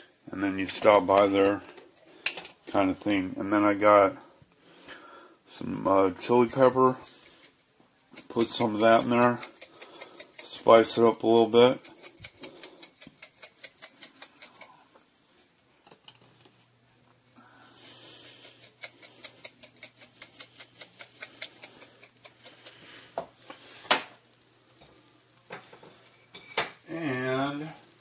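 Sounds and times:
pepper flakes rattling in shaker jar: 8.1s - 14.7s, 17.8s - 23.8s.

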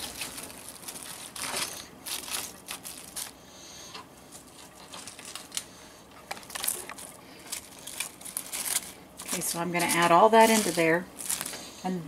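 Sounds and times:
cabbage leaves rustling and crunching: 0.0s - 3.4s, 6.3s - 11.9s.

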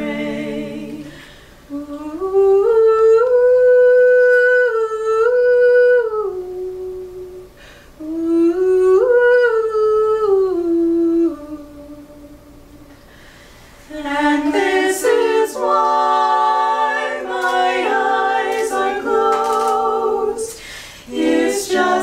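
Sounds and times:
women humming a melody: 1.7s - 13.0s.

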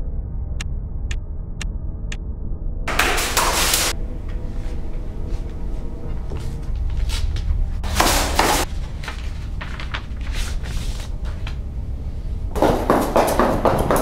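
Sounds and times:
steady low hum: 0.0s - 14.0s
paper rustling: 2.9s - 5.4s, 6.1s - 11.6s.

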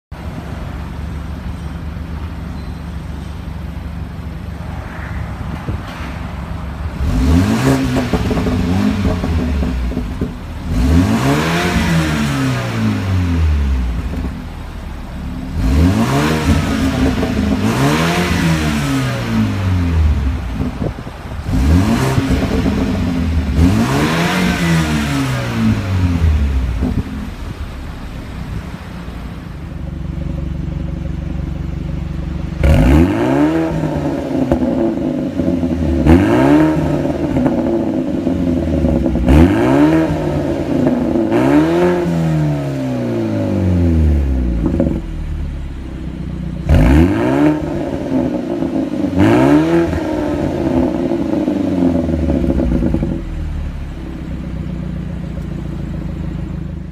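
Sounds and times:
car engine idling: 0.1s - 56.9s
car engine revving: 3.8s - 56.9s.

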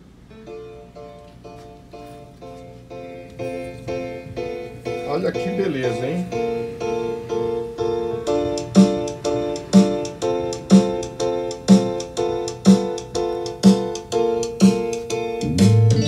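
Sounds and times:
instrumental music over loudspeakers: 8.3s - 16.0s
low bass line: 15.4s - 16.0s.

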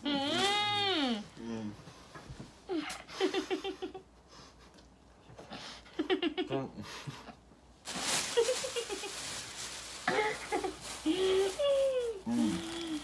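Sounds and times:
spitting into plastic bag: 7.8s - 13.0s.

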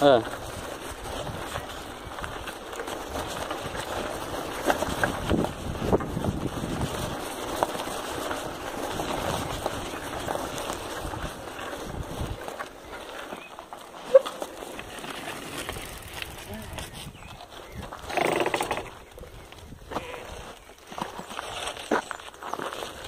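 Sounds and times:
bicycle clicks and rattles: 0.0s - 19.7s
wind on microphone: 0.3s - 12.5s, 15.7s - 20.6s.

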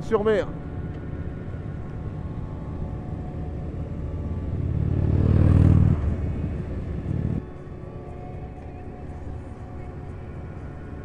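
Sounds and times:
motorcycle engine running: 0.8s - 7.4s
wind rush: 1.4s - 7.4s.

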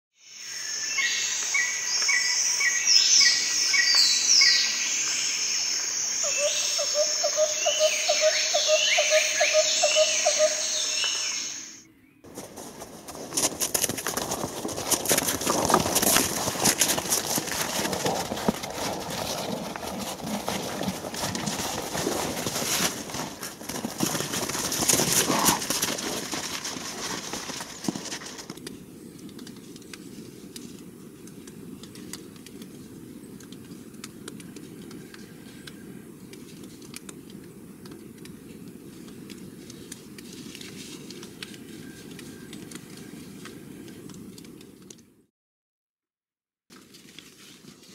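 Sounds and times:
wild boar rooting through snow: 12.3s - 28.7s.

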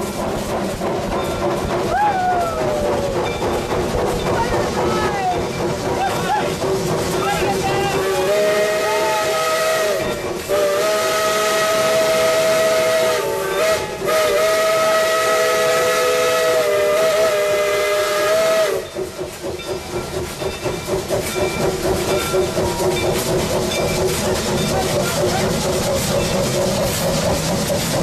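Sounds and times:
locomotive exhaust chuffing: 0.0s - 28.0s
steam locomotive whistle: 8.0s - 19.0s.

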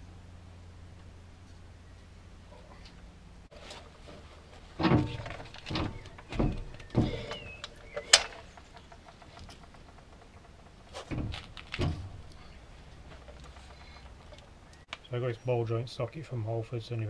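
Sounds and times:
dull metal knocks and clunks: 2.5s - 14.6s.

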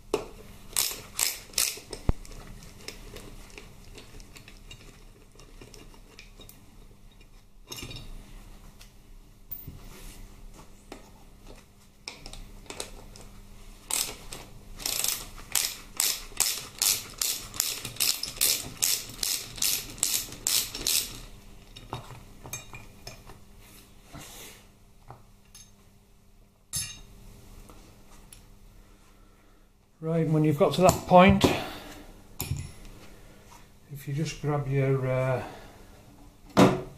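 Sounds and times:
hand ratchet clicking: 0.8s - 2.0s, 13.9s - 21.2s.

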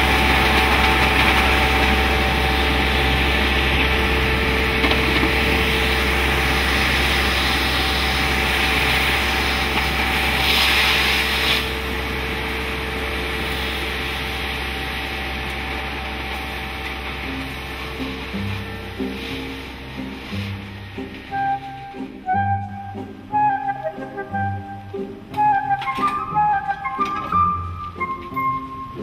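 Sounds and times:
low engine rumble: 0.0s - 29.0s
steady whine: 0.0s - 29.0s
suction hose rushing hiss: 5.5s - 12.0s, 17.3s - 21.4s.

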